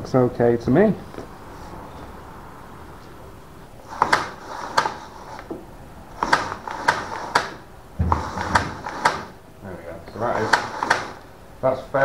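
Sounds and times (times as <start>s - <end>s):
dull thump: 8.0s - 9.3s.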